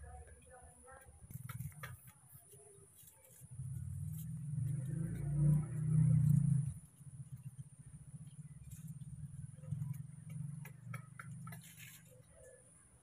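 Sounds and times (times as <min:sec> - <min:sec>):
faint clicks and rustles: 0:00.0 - 0:13.0
small engine ticking: 0:03.3 - 0:12.6.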